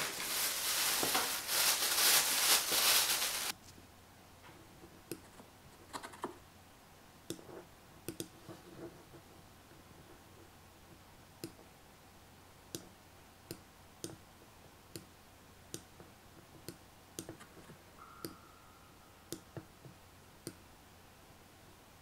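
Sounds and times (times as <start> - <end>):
room hiss: 0.0 - 22.0
computer mouse clicking: 8.1 - 8.4
faint steady tone: 17.8 - 22.0.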